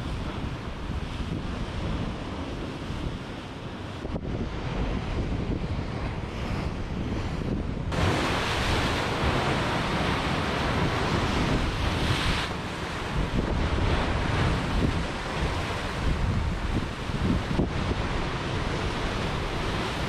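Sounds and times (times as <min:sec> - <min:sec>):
wind buffeting microphone: 0:00.0 - 0:20.0
surf breaking over rocks: 0:07.9 - 0:20.0.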